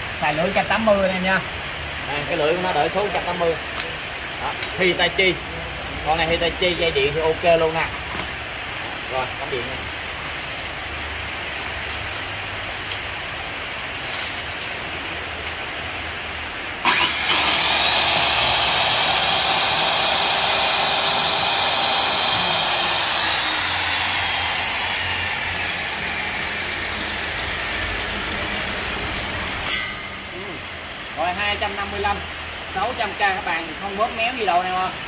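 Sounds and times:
power tool motor whine: 16.8s - 29.7s.

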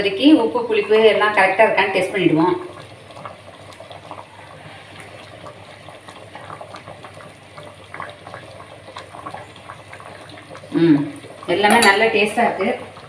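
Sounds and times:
curry bubbling in a pot: 0.0s - 13.0s.

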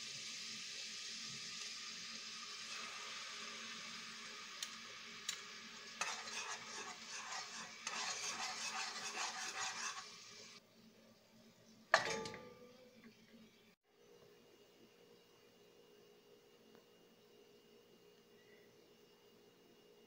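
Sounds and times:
sauce sizzling in hot oil: 0.0s - 10.6s
lid clanking on pot: 11.9s - 12.6s.

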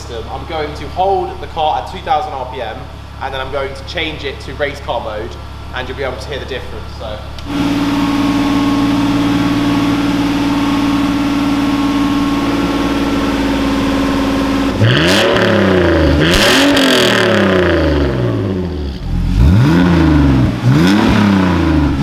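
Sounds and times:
car engine revving through exhaust: 7.2s - 22.0s.

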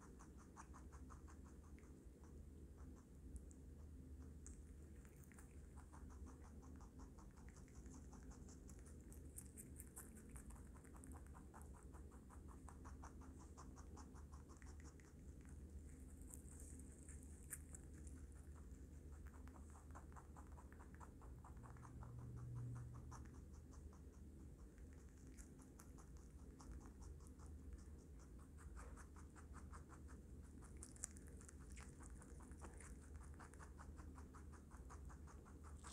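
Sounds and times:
rabbit chewing: 0.0s - 35.9s.

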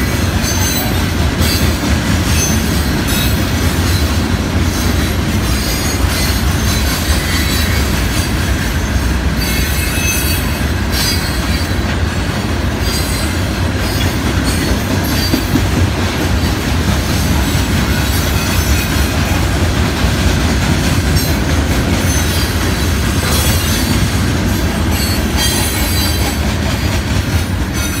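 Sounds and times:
clickety-clack over rail joints: 0.0s - 28.0s
train wheels rumbling on track: 0.0s - 28.0s
wheels squealing: 24.9s - 26.9s.

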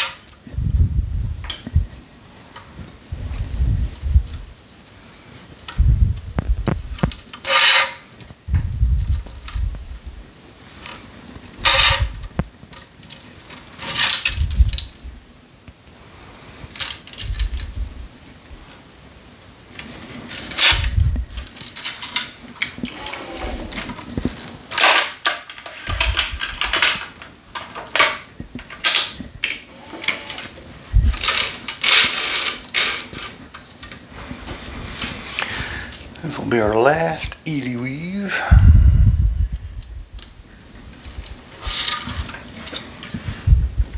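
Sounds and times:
tennis string scraping zips: 22.8s - 23.9s.

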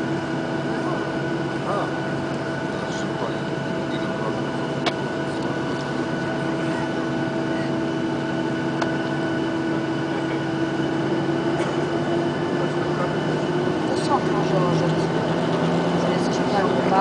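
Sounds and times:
jet engines humming: 0.0s - 17.0s.

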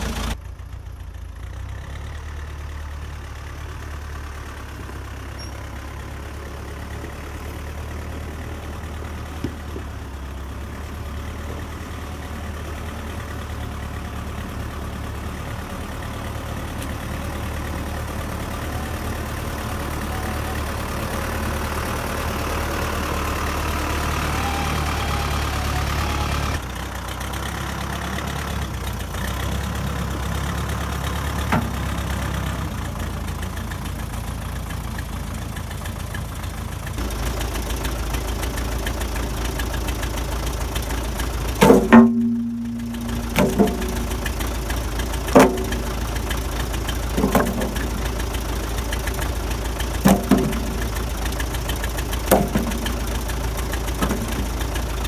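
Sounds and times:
diesel engine running: 0.0s - 55.0s
sharp clunk: 41.6s - 44.3s, 45.3s - 46.0s, 47.2s - 48.0s, 50.1s - 50.9s, 52.3s - 53.0s.

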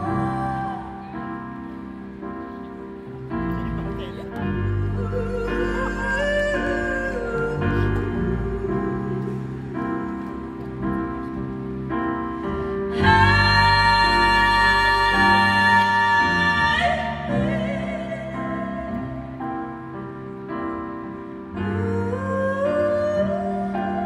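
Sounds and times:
piano chords: 0.0s - 24.0s
woman singing wordlessly: 4.6s - 9.4s, 13.0s - 19.3s.

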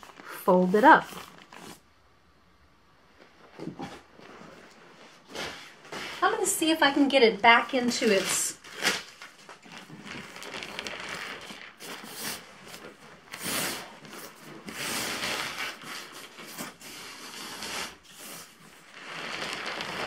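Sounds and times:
nylon fabric rustling and crinkling: 0.0s - 1.9s, 3.0s - 20.0s.

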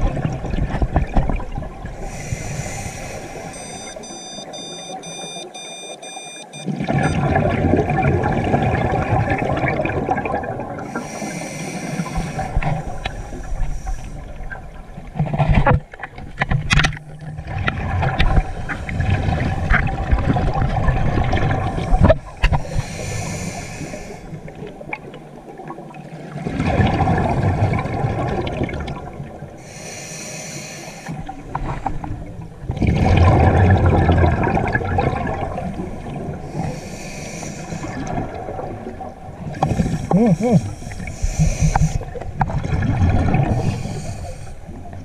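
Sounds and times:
exhaled bubbles underwater: 0.0s - 5.4s, 6.6s - 15.6s, 17.1s - 29.8s, 31.0s - 45.0s
regulator inhale hiss: 2.0s - 4.0s, 10.9s - 14.3s, 22.6s - 24.4s, 29.6s - 31.2s, 36.5s - 38.0s, 39.8s - 42.0s, 43.5s - 44.8s
short high beeps: 3.5s - 6.7s.

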